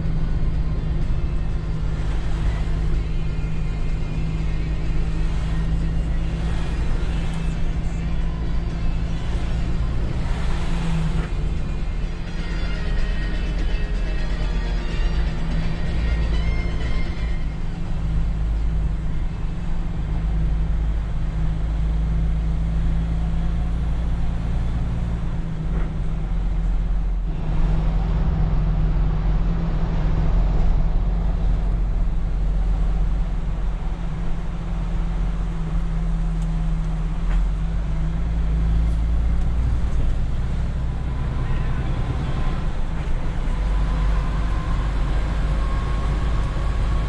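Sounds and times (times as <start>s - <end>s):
road noise: 0.0s - 47.0s
truck diesel engine running: 0.0s - 47.0s.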